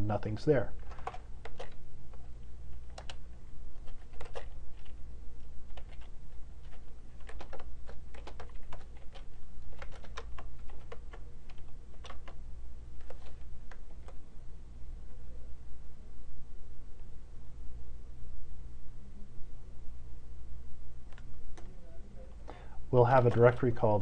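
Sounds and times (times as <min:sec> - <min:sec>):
low steady hum: 0:00.0 - 0:24.0
keyboard keystroke clicks: 0:00.9 - 0:01.8.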